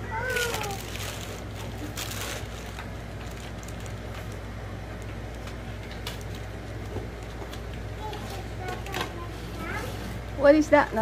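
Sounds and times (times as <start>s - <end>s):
plush toy rustling: 0.1s - 4.5s.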